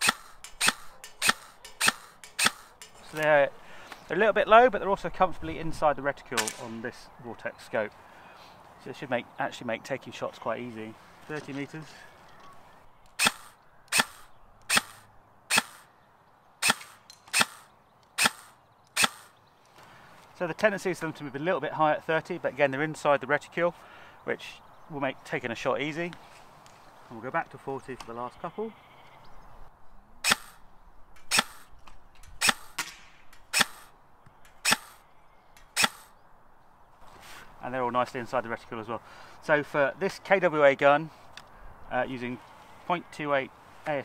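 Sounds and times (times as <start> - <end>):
airsoft rifle shots: 0.0 - 3.0, 6.4 - 6.8, 13.2 - 15.9, 16.6 - 19.4, 30.2 - 30.6, 31.2 - 31.7, 32.4 - 33.9, 34.6 - 35.0, 35.7 - 36.1.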